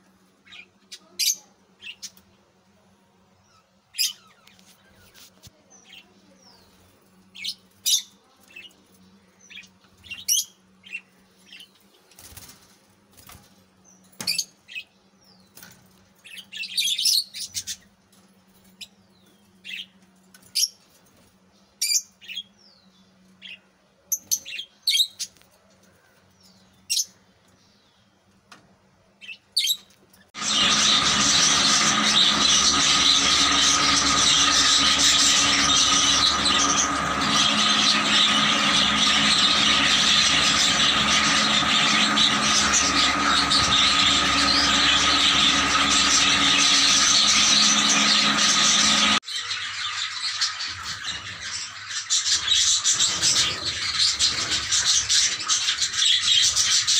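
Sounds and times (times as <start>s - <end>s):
loud steady noise: 30.4s - 49.2s.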